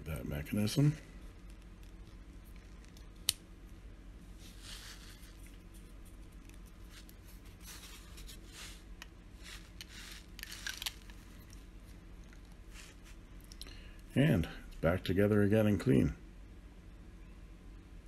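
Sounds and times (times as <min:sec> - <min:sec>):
faint scraping and rubbing: 0:04.2 - 0:13.3.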